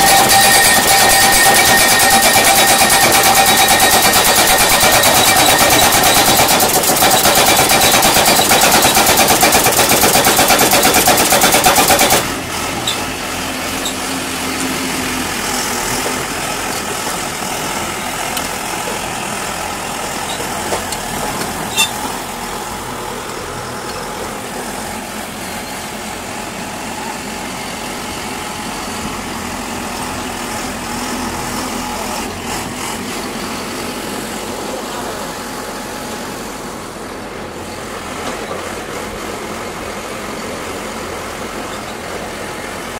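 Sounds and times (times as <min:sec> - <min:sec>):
engine idling: 0:00.0 - 0:13.0
pile driver hammer pounding: 0:00.0 - 0:13.0.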